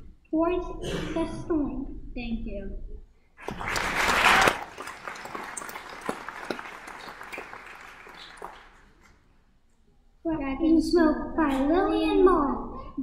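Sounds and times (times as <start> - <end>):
audience applauding: 3.4 - 9.1.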